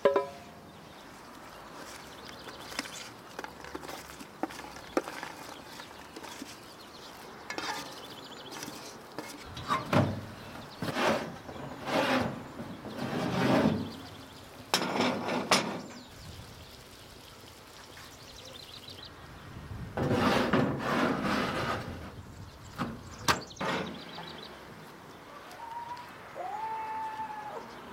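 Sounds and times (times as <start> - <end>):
scrapes rubs and knocks: 1.7 - 10.2, 10.8 - 14.2, 14.8 - 16.0, 20.0 - 22.2
baking dishes scraping on stove top: 7.5 - 10.0, 10.8 - 16.0, 20.0 - 22.2.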